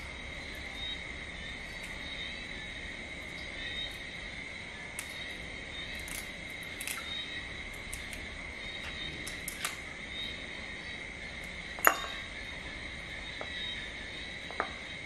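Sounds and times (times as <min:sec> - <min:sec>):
insect trill: 0:00.0 - 0:15.0
crab shell clicking and cracking: 0:04.9 - 0:09.9.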